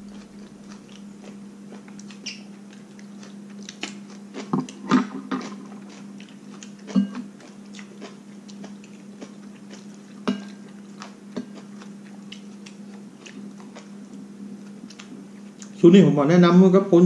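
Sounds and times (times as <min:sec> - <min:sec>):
chewing sounds: 0:00.0 - 0:15.8
steady low hum: 0:00.0 - 0:17.0
metal spoon clinking on bowl: 0:06.9 - 0:07.2.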